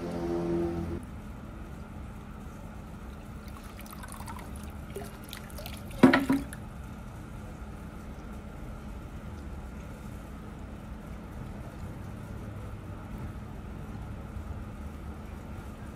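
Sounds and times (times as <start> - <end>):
water trickling into stone basin: 3.1 - 6.7.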